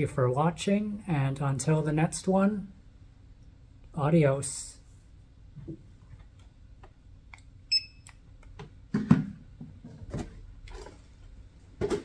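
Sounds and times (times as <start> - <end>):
short electronic beep: 7.7 - 8.0.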